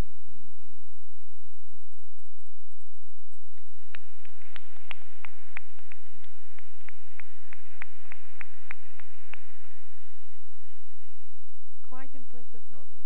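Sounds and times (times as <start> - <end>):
person clapping: 3.5 - 10.7
audience applauding: 3.6 - 11.2.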